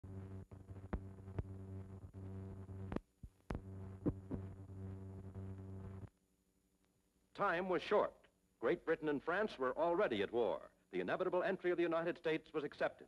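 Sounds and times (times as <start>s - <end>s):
film soundtrack crackles and pops: 0.0s - 7.4s
steady low hum: 0.0s - 11.0s.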